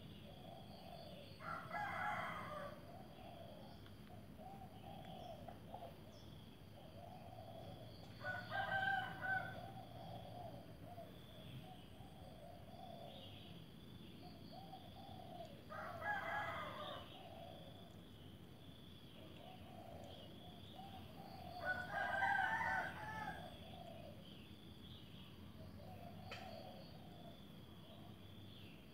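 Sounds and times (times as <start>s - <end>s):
rooster crowing: 1.4s - 2.8s, 8.2s - 9.9s, 15.7s - 17.3s, 21.5s - 23.6s.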